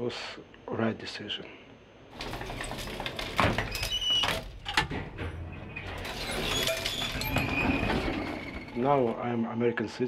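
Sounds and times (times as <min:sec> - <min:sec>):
metal gate clanking: 0:02.1 - 0:09.2
elevator low running noise: 0:02.1 - 0:09.4
short squeaks: 0:02.2 - 0:09.2.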